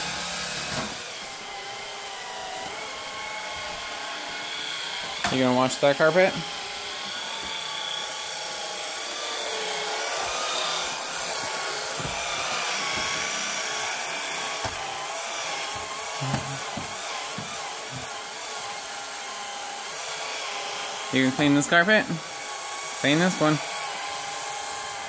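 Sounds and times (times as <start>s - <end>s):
electric sweeper motor whine: 0.0s - 25.0s.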